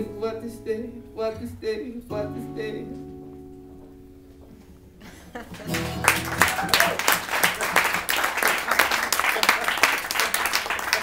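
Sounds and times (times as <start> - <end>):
acoustic guitar chords: 0.0 - 6.7
audience applause: 5.4 - 11.0.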